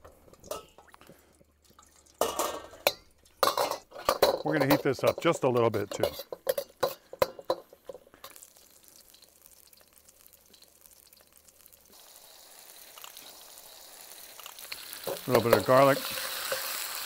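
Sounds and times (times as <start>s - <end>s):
faint sizzle: 0.0s - 3.7s, 6.8s - 17.0s.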